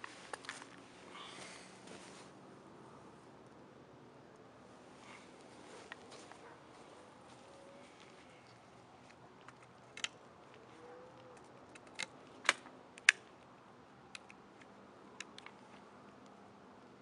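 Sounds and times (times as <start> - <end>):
background hiss: 0.0 - 10.9.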